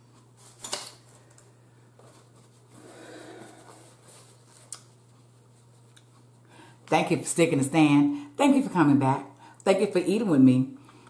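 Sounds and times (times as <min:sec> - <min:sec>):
paper napkin rustling: 0:02.0 - 0:06.4.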